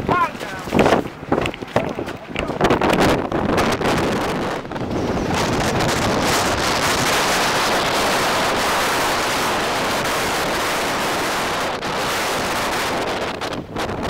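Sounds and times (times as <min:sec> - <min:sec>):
storm wind on microphone: 0:00.0 - 0:14.0.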